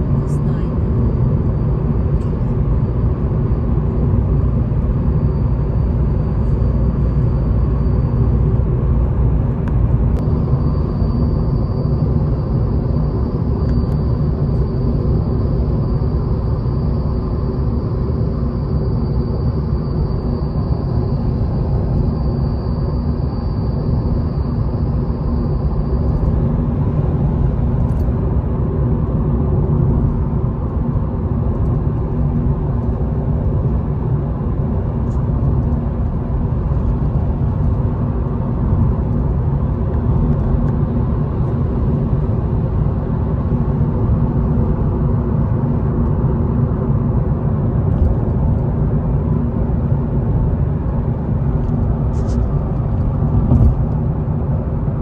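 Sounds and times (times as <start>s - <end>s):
car cabin road rumble: 0.0s - 55.0s
faint high steady tone: 10.2s - 26.4s.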